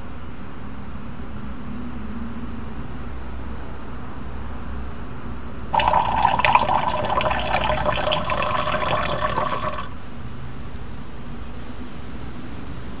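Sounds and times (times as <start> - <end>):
liquid pouring into glass: 5.8 - 10.0.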